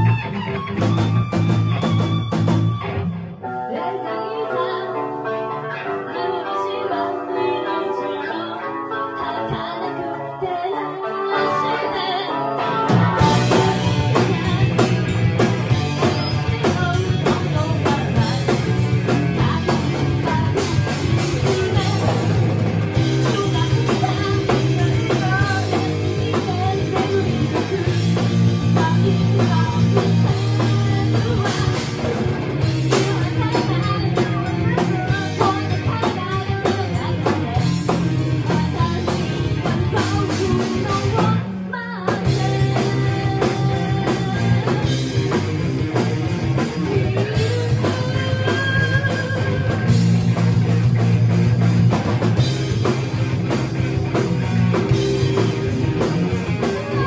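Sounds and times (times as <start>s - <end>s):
drum kit: 0.0s - 3.5s, 8.8s - 57.0s
electric guitars: 0.0s - 57.0s
woman singing: 3.4s - 22.4s, 23.0s - 45.5s, 46.6s - 50.2s, 56.5s - 57.0s.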